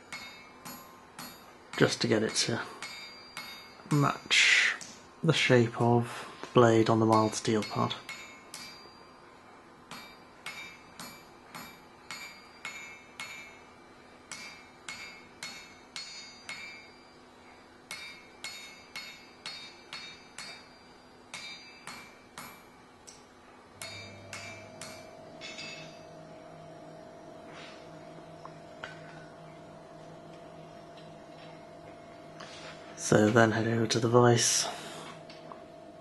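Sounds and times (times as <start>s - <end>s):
hammer striking steel on anvil: 0.0s - 4.7s, 7.0s - 9.2s, 9.8s - 29.3s
low steady hum: 0.0s - 36.0s.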